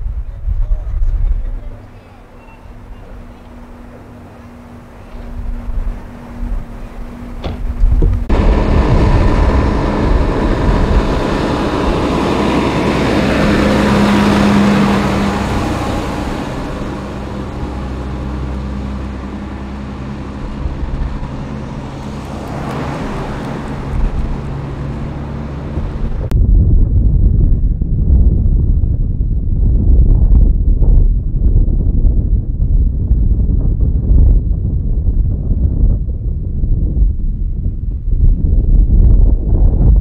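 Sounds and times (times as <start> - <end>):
fire engine diesel engine passing: 1.4 - 26.3.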